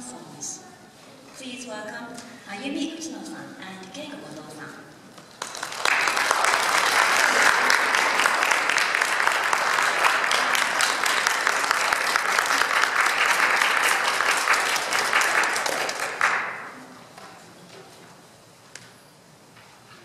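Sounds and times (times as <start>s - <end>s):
audience applauding: 5.3s - 16.9s.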